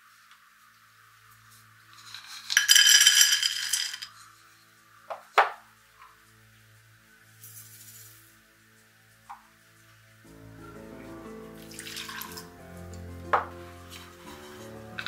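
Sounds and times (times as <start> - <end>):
peanuts rattling into a pan: 2.0 - 4.2.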